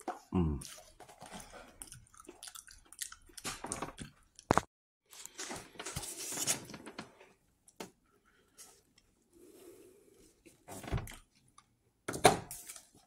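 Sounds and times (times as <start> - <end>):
close-up chewing and mouth smacks: 0.0 - 4.7.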